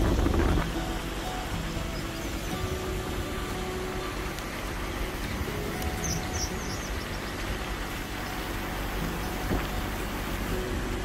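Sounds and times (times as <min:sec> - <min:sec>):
water rushing over rocks: 0:00.0 - 0:11.0
small bird chirping: 0:05.8 - 0:07.5.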